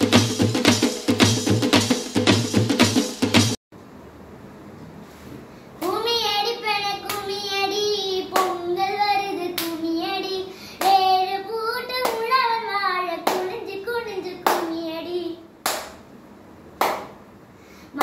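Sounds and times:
hand claps keeping beat: 0:00.0 - 0:03.6, 0:07.1 - 0:07.3, 0:08.3 - 0:08.6, 0:09.6 - 0:09.8, 0:12.0 - 0:12.4, 0:13.2 - 0:13.6, 0:14.4 - 0:14.8, 0:15.6 - 0:16.0, 0:16.8 - 0:17.2
girl singing slow tune: 0:05.7 - 0:15.6.

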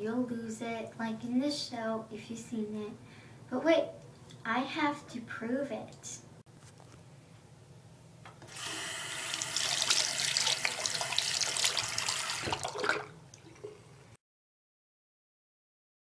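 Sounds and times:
sink faucet running: 0:08.4 - 0:13.7.

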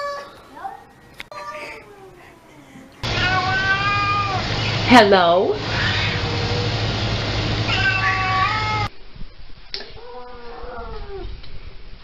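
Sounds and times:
cat meowing: 0:03.0 - 0:04.4, 0:05.7 - 0:06.3, 0:07.7 - 0:08.9.

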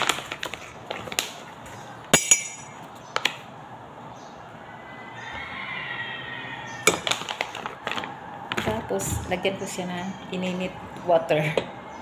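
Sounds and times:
metal spoon clinking on glass: 0:02.2 - 0:02.7.

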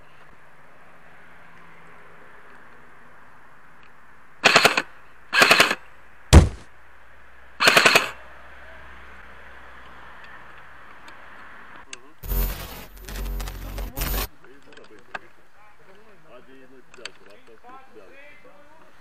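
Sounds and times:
airsoft rifle full-auto bursts: 0:04.4 - 0:05.8, 0:07.6 - 0:08.2
sharp thump: 0:06.3 - 0:06.7.

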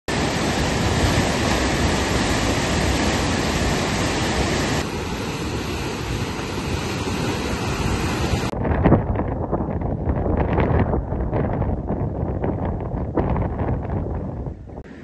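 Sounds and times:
floodwater rushing: 0:00.1 - 0:08.6.

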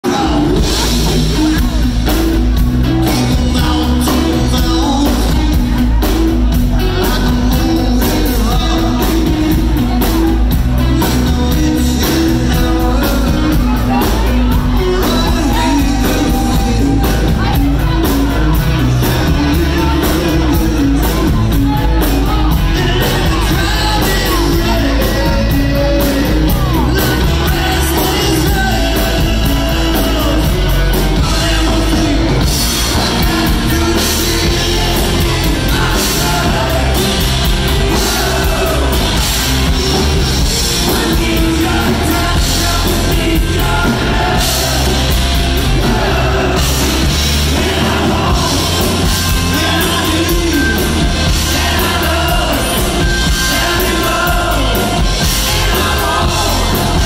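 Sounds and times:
drum kit with cymbal hits: 0:00.0 - 0:57.0
electric guitars: 0:00.0 - 0:57.0
man singing: 0:00.0 - 0:57.0.

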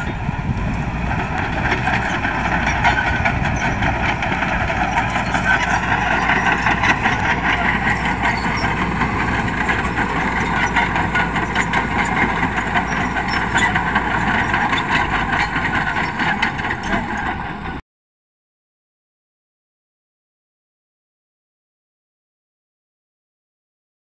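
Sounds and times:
diesel engine running: 0:00.0 - 0:17.8
steel tracks clattering: 0:00.0 - 0:17.8.

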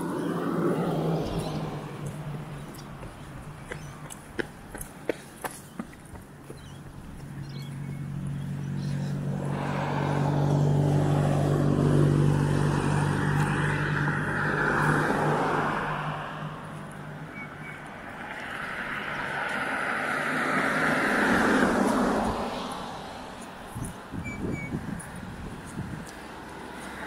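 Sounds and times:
cars passing: 0:00.0 - 0:27.0
vehicle engine humming: 0:00.0 - 0:27.0.

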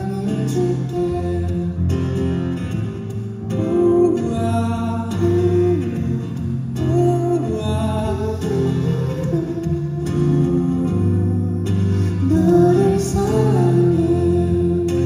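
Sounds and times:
acoustic guitar: 0:00.0 - 0:15.0
person singing: 0:03.5 - 0:15.0.

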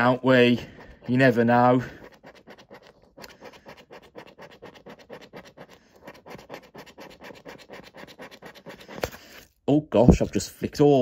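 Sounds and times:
coin scraping a scratchcard: 0:02.0 - 0:09.2.

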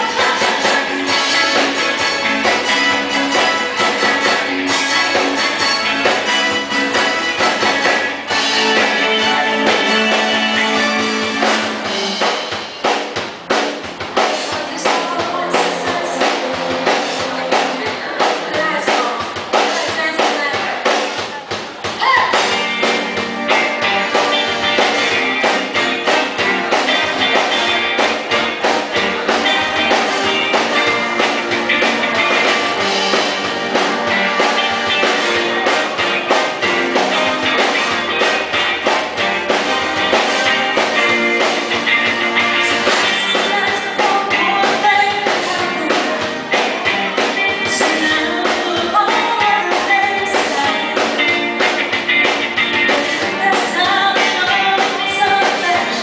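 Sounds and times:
woman singing: 0:00.0 - 0:02.0, 0:14.2 - 0:20.9, 0:43.0 - 0:51.3, 0:52.8 - 0:56.0
drums: 0:00.0 - 0:56.0
electric guitar: 0:00.0 - 0:56.0.

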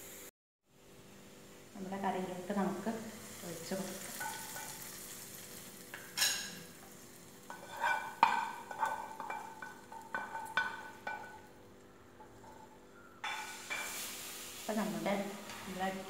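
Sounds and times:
hot oil sizzling: 0:01.1 - 0:16.0
utensil clinking on steel pot: 0:07.5 - 0:11.5.

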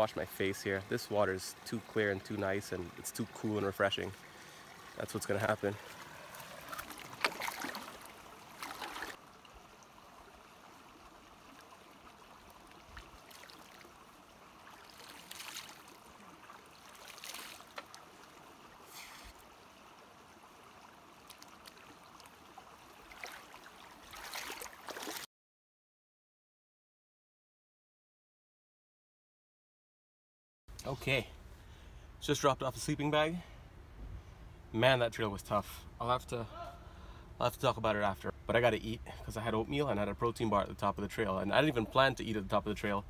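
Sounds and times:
stream trickling: 0:00.0 - 0:25.3, 0:30.7 - 0:43.0
water splashing over a face: 0:03.8 - 0:09.2, 0:11.4 - 0:19.6, 0:21.0 - 0:25.3
feet splashing through water: 0:05.7 - 0:09.2, 0:11.4 - 0:19.4, 0:21.1 - 0:25.3.

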